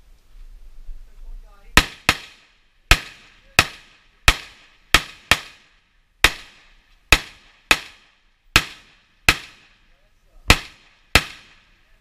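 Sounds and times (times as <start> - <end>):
pistol shots: 1.8 - 9.8, 10.5 - 11.7.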